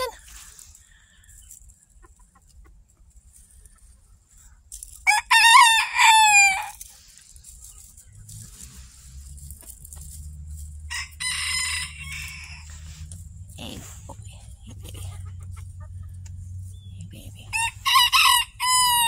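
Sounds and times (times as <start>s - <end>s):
rooster crowing: 5.0s - 6.8s, 10.9s - 12.9s, 17.5s - 19.0s
chicken call: 5.1s - 6.8s, 17.5s - 19.0s.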